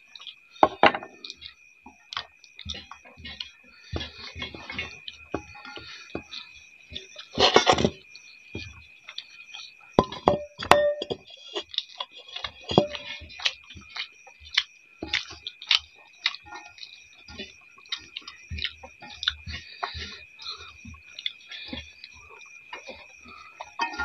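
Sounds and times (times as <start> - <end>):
steady high-pitched whine: 0.0 - 24.0
chewing smacks: 11.3 - 23.9.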